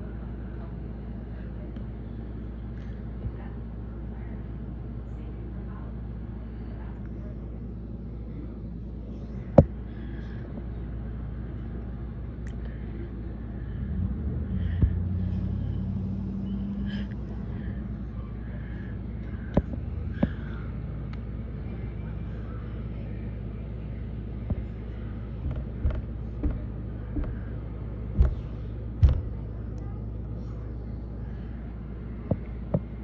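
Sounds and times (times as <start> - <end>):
steady low rumble: 0.0 - 33.0
car engine driving off: 13.7 - 17.3
sharp clicks and knocks: 25.4 - 27.5, 28.1 - 29.4.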